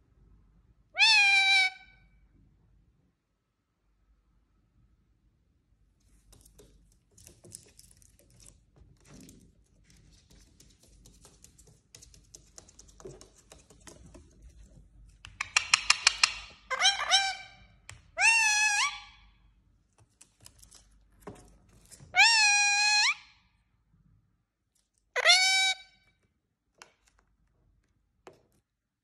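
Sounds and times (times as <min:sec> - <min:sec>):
parakeet squawking: 0:01.0 - 0:02.0, 0:15.6 - 0:19.2, 0:22.1 - 0:23.3, 0:25.2 - 0:26.0
beak tapping on mirror: 0:15.2 - 0:16.6.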